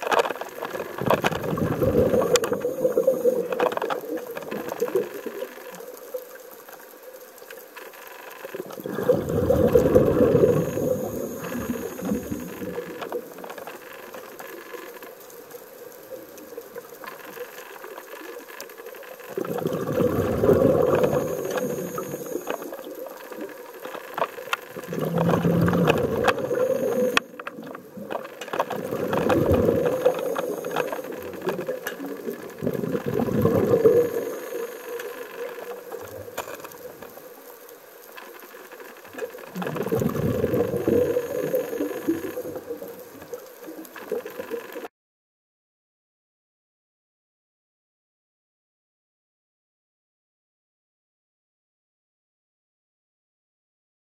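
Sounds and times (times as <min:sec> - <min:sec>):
underwater exhaled bubbles rushing: 0:00.0 - 0:06.4, 0:08.5 - 0:14.0, 0:19.3 - 0:37.4, 0:39.1 - 0:44.6.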